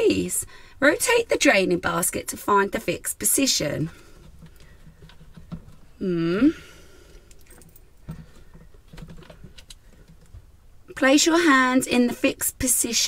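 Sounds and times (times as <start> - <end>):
plastic basket clicking and scraping: 4.1 - 5.9, 8.1 - 10.5.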